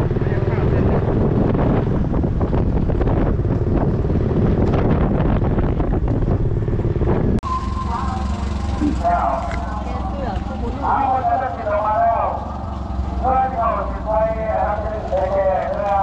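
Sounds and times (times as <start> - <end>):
wind buffeting microphone: 0.0 - 7.4
motor scooter running: 0.0 - 16.0.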